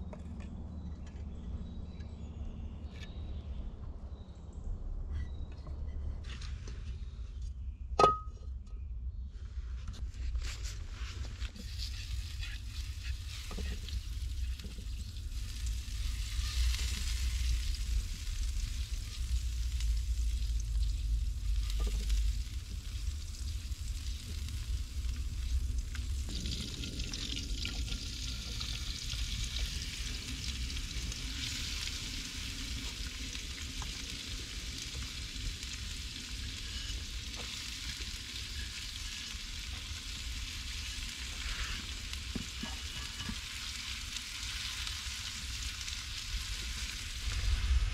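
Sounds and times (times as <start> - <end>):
food sizzling in a frying pan: 11.5 - 47.9
low rumble: 13.8 - 36.4, 46.2 - 47.9.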